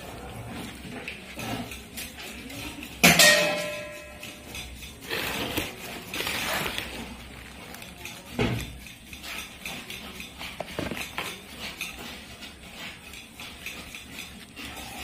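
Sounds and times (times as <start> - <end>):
packaging rustling and crinkling: 5.0 - 8.0.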